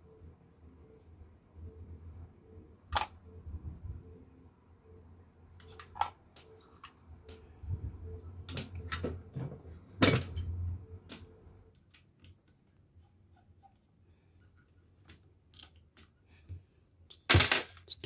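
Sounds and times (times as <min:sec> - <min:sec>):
metal parts clicking and knocking: 0:15.5 - 0:15.9.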